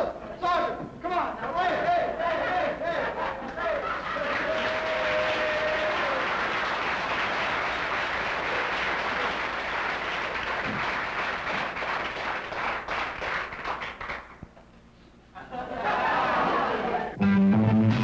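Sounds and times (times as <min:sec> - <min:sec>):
crowd applauding: 0:03.5 - 0:14.4.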